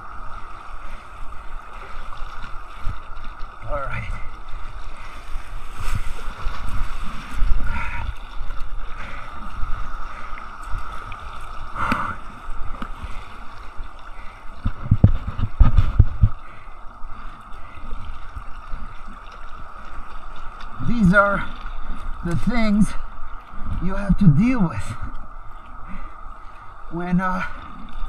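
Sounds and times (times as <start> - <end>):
wind on microphone: 0.0 - 17.3.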